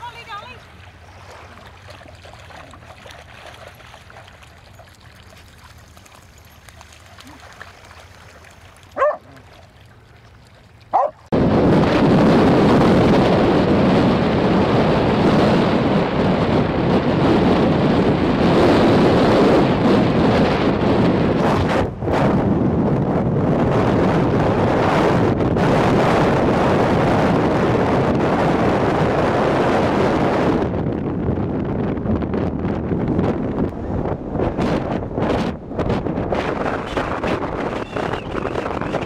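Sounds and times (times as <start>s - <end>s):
wind buffeting microphone: 0.0s - 39.0s
dog barking: 9.0s - 9.4s, 10.9s - 11.2s.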